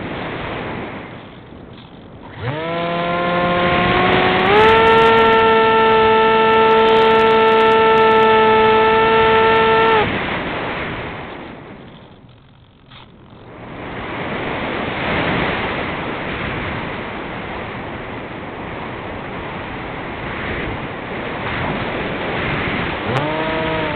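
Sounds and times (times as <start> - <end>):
wind rushing over airframe: 0.0 - 11.8, 13.5 - 23.9
model aircraft motor whining: 1.0 - 10.2, 22.5 - 23.9.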